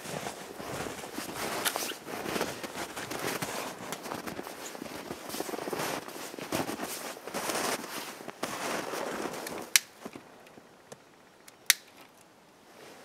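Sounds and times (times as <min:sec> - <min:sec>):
rustling brush: 0:00.0 - 0:09.8
boots crunching in snow: 0:00.0 - 0:10.1
sharp snaps: 0:09.6 - 0:10.0, 0:11.5 - 0:12.0.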